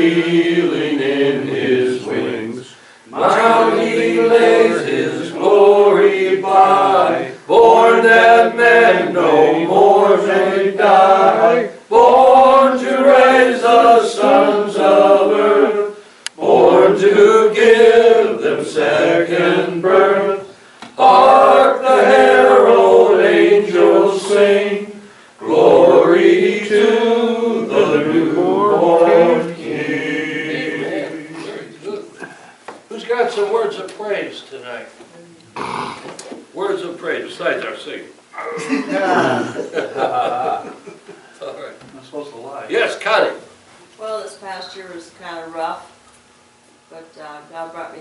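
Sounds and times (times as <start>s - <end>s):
congregation singing a hymn: 0.0s - 32.0s.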